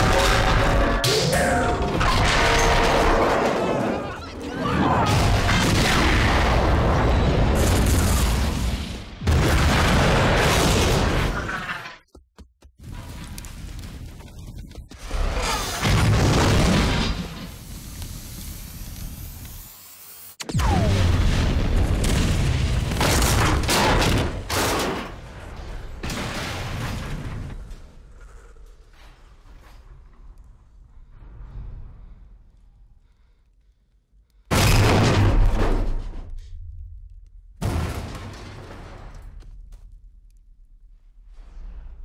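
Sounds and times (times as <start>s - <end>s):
sharp explosion blasts: 5.0s - 11.3s
explosions rumbling: 20.5s - 24.5s.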